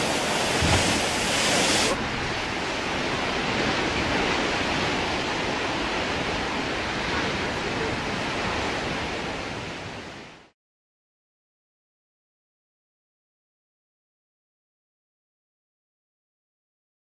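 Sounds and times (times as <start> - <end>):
ocean surf breaking wave: 0.0 - 10.5.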